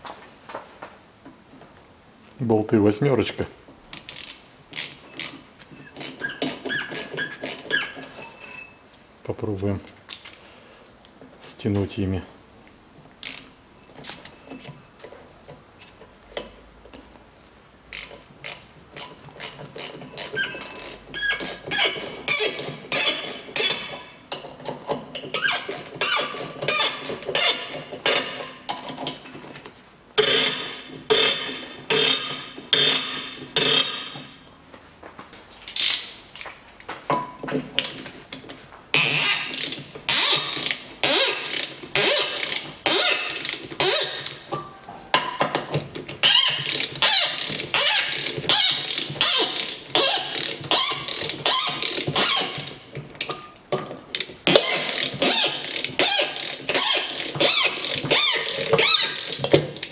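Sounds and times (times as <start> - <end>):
ratchet wrench clicking: 4.0 - 5.4, 13.2 - 13.5, 17.9 - 29.2, 30.2 - 34.2, 39.0 - 44.4, 46.2 - 52.8, 54.1 - 59.6.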